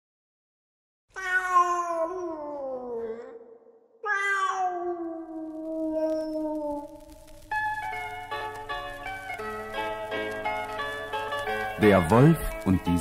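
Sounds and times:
cat meowing: 1.1 - 7.5.

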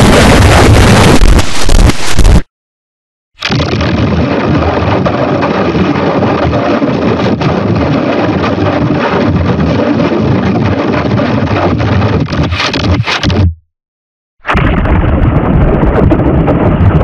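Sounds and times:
harsh distorted noisy roar: 0.0 - 2.5.

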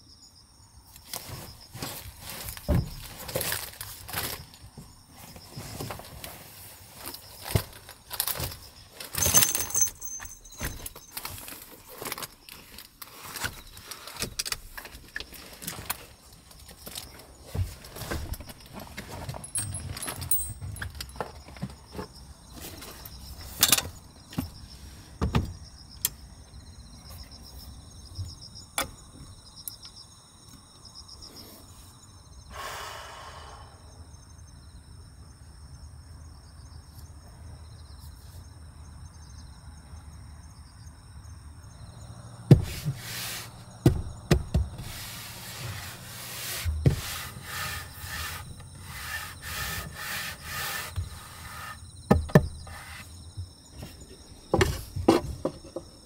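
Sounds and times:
insects chirping: 0.0 - 56.0
knocks and rubbing on wooden boards: 42.5 - 56.0.

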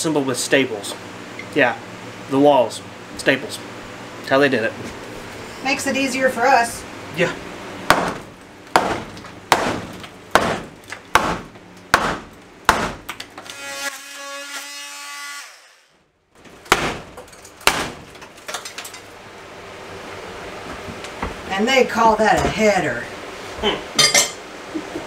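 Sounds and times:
hammer knocking on wood: 7.9 - 9.8.

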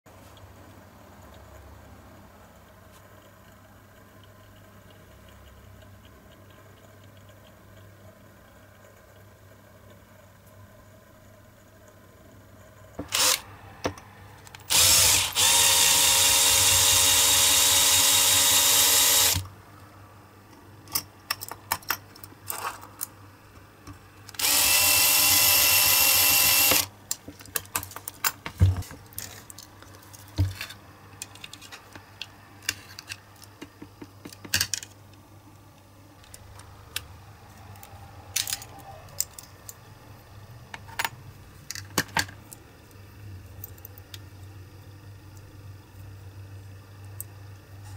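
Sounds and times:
cordless drill drilling into metal: 13.0 - 13.4, 14.7 - 19.4, 24.4 - 26.9.

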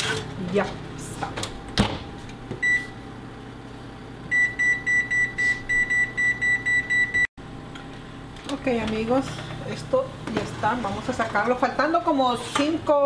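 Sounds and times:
oven control beeping: 2.6 - 3.0, 4.3 - 7.3.

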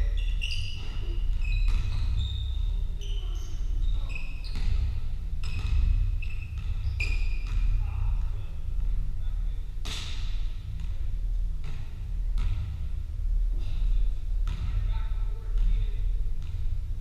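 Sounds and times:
low hum: 0.0 - 17.0
ball bouncing: 0.6 - 2.5, 4.5 - 8.0, 9.8 - 12.9, 14.4 - 14.9, 15.5 - 16.8.

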